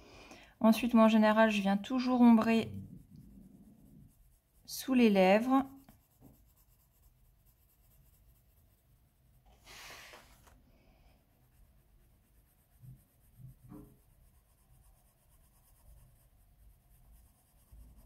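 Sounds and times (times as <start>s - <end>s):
pencil shading on paper: 1.0s - 18.0s
scratchy pencil stroke: 1.8s - 18.0s.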